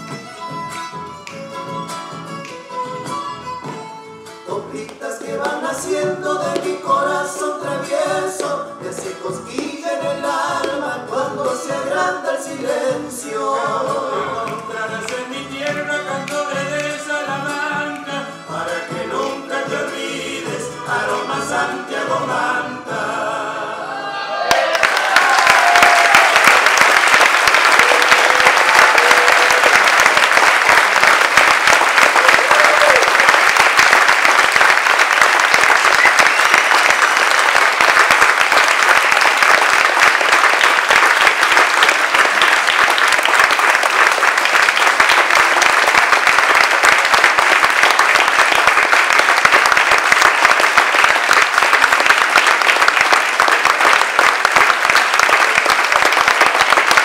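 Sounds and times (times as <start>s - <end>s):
audience applauding: 24.4s - 57.0s.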